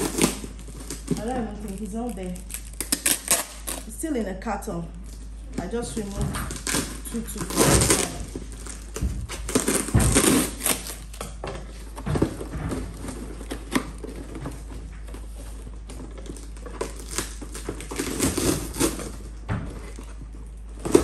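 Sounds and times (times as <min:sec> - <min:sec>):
plastic film crinkling: 0:00.0 - 0:04.1, 0:05.0 - 0:21.0
cardboard rustling and scraping: 0:05.6 - 0:21.0.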